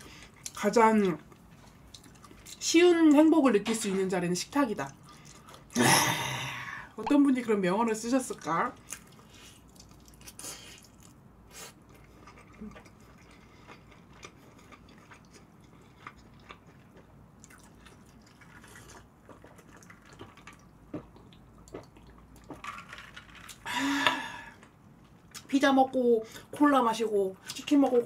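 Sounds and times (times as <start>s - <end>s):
chewing fried chicken: 0.0s - 2.6s, 8.3s - 23.7s.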